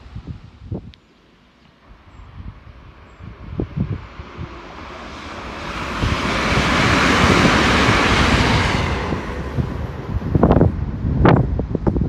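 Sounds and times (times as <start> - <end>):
wind buffeting microphone: 0.0 - 1.0, 1.8 - 12.0
train passing: 1.3 - 12.0.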